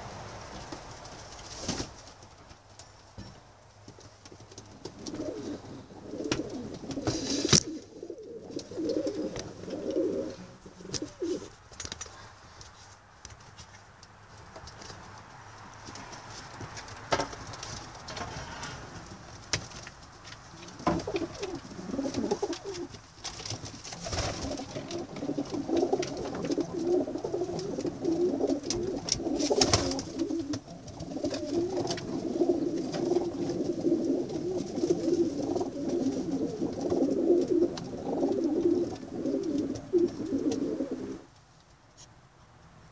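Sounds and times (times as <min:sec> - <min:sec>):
pigeons cooing: 0:04.6 - 0:11.6, 0:20.5 - 0:23.0, 0:24.0 - 0:41.3.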